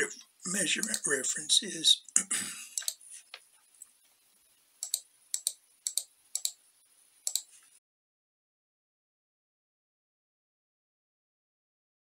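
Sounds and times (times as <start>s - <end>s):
computer mouse clicks: 0.8s - 1.0s, 2.8s - 3.9s, 4.8s - 6.6s, 7.2s - 7.5s.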